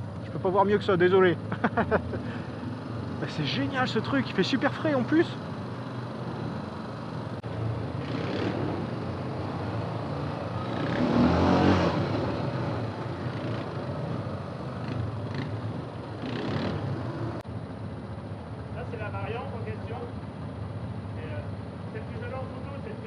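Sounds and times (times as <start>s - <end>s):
quad bike engine revving: 1.1s - 17.4s.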